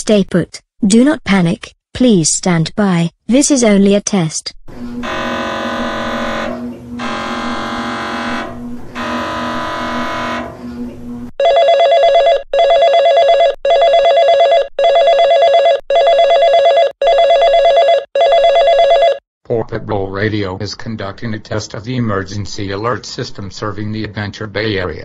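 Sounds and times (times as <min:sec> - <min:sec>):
buzzing header bursts: 0:04.7 - 0:11.3
pulsing alert tone: 0:04.8 - 0:11.3.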